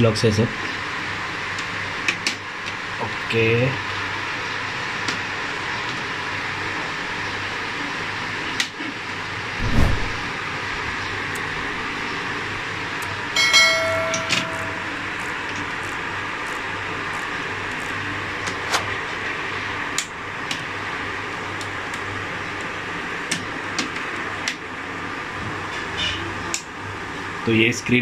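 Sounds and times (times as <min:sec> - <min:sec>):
brief ringing tone: 0:13.4 - 0:15.2.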